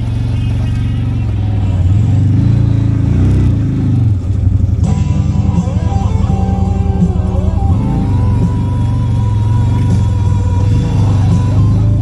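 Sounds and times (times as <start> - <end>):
utility vehicle engine revving: 0.0 - 12.0
background music: 4.7 - 12.0.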